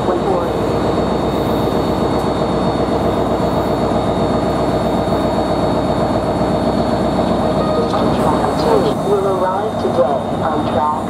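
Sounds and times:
locomotive engine drone: 0.0 - 11.0.

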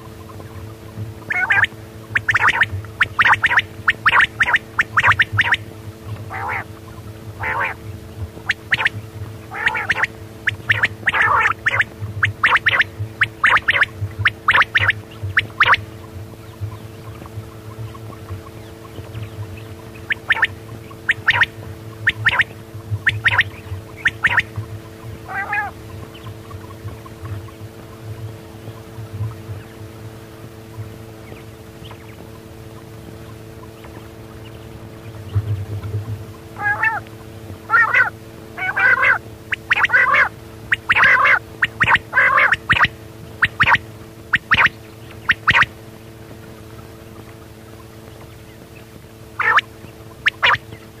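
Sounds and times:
quail calling: 0.0 - 51.0
steady hum: 0.0 - 51.0.

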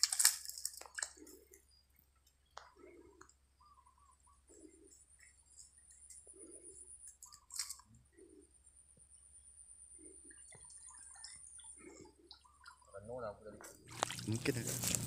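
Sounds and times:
rustling crackle: 0.0 - 1.6, 13.9 - 15.0.

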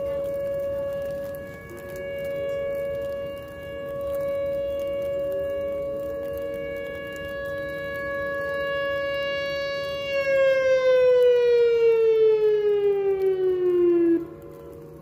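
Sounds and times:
fainter siren tones: 0.0 - 15.0
warning siren winding down: 0.0 - 15.0.

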